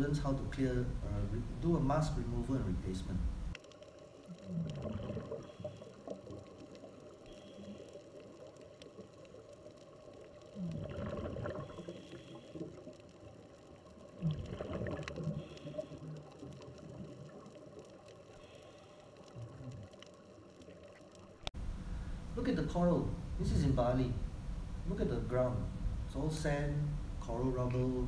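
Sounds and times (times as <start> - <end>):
bubbles gurgling: 4.3 - 18.1.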